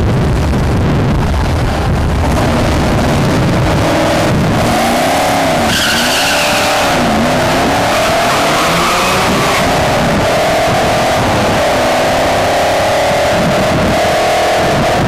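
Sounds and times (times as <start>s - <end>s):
drag car engines accelerating: 0.1s - 15.0s
high squeal: 5.6s - 7.3s.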